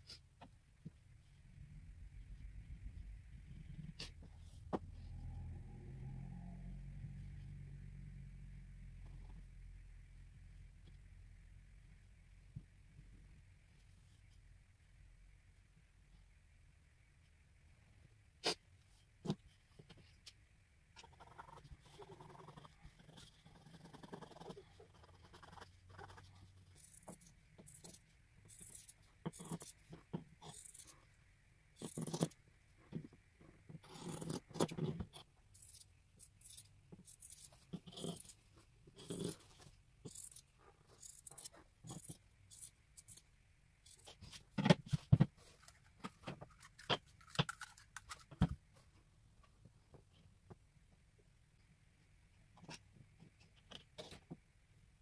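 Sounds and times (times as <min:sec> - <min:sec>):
pencil scratching on fabric: 0:21.0 - 0:31.1, 0:33.8 - 0:44.5.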